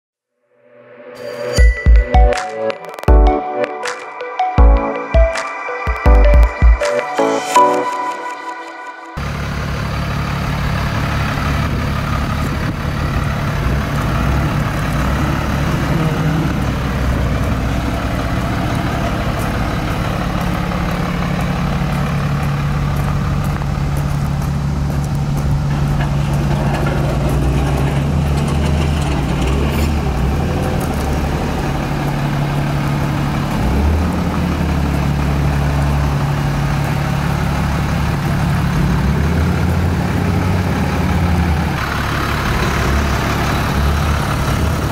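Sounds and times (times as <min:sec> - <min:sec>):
diesel truck idling: 0:09.2 - 0:44.9.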